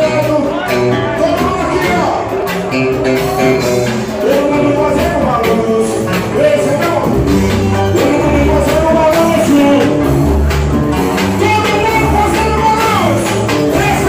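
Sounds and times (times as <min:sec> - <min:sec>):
man singing into a microphone: 0:00.0 - 0:02.2, 0:04.1 - 0:10.0, 0:11.4 - 0:14.0
pulsing bass beat: 0:00.0 - 0:14.0.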